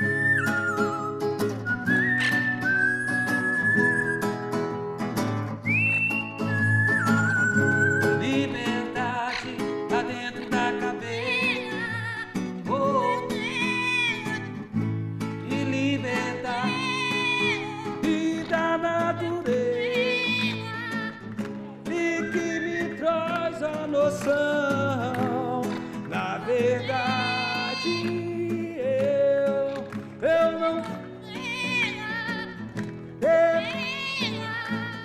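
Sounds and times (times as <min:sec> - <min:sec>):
plucked guitar: 0:00.0 - 0:35.0
person singing: 0:07.8 - 0:14.6, 0:15.4 - 0:35.0.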